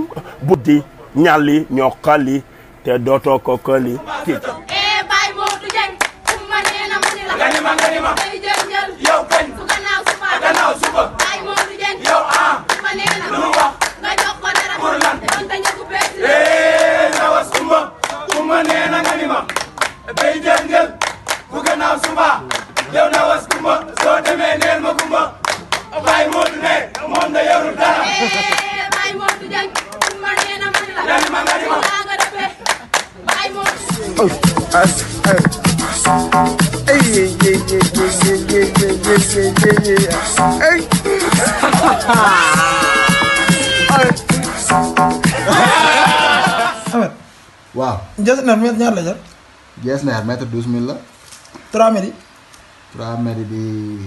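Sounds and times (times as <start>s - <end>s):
voices chanting together: 3.7s - 47.0s
rhythmic hand-clapping: 4.7s - 47.0s
fast percussive beat: 33.7s - 47.0s.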